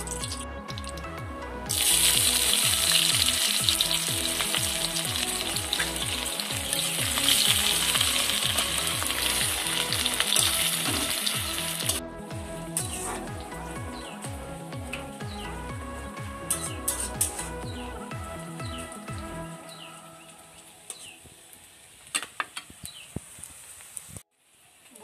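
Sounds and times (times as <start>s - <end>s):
onions sizzling in hot oil: 1.7s - 12.0s, 22.8s - 24.6s.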